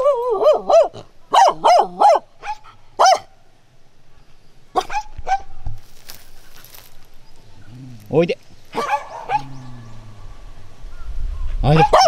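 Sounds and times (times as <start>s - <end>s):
dog yelping barks: 0.0s - 3.3s, 4.7s - 5.6s, 8.7s - 9.5s, 11.7s - 12.0s.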